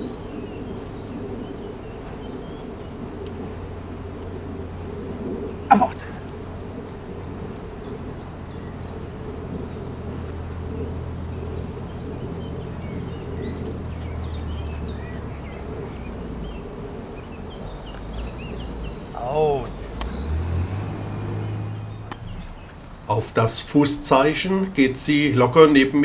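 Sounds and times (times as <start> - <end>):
small birds chirping: 0.0 - 26.0
steady low hum: 0.0 - 26.0.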